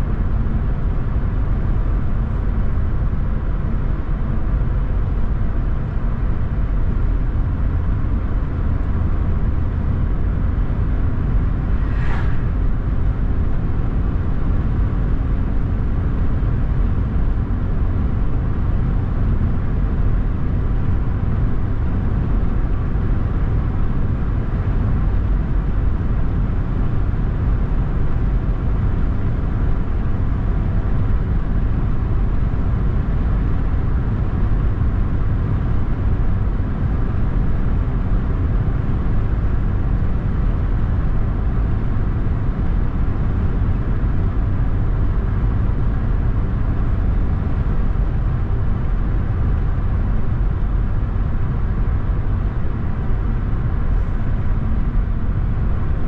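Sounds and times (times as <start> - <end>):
car road and engine rumble: 0.0 - 56.0
brief hiss: 11.6 - 12.9.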